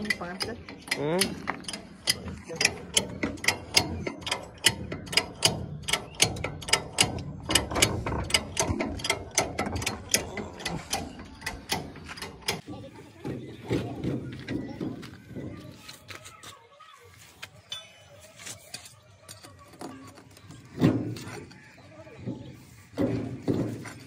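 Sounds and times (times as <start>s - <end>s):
metal jack ratcheting clicks: 0.0s - 12.6s.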